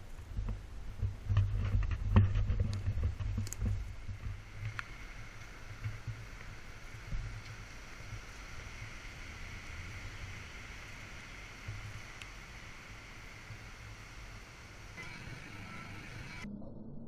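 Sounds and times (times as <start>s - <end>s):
wind rumbling on microphone: 0.0s - 17.0s
outdoor hiss: 3.2s - 16.5s.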